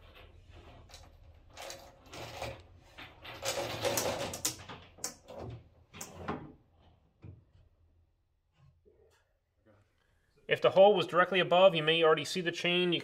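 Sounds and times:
metal chain rattling and scraping: 0:00.0 - 0:04.6.

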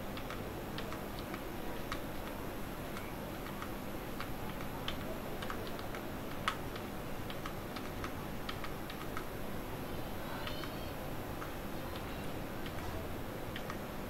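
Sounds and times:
keyboard keys clicking: 0:00.2 - 0:02.4, 0:03.0 - 0:09.3.

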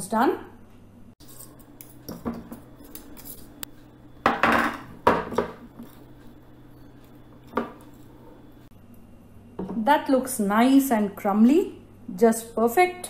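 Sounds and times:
metal fork scraping glass bowl: 0:01.2 - 0:03.7, 0:05.7 - 0:08.4.

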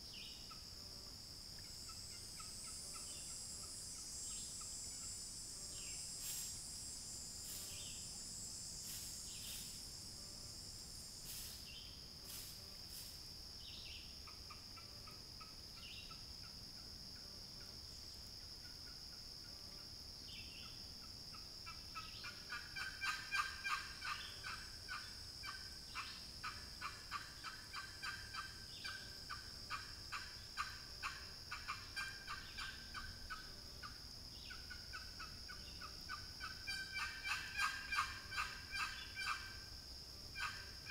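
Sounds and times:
turkey call yelps: 0:22.8 - 0:24.6, 0:36.4 - 0:39.5.

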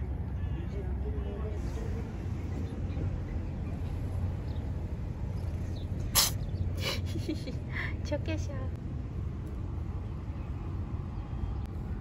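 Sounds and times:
cat sneezing: 0:06.1 - 0:06.5.

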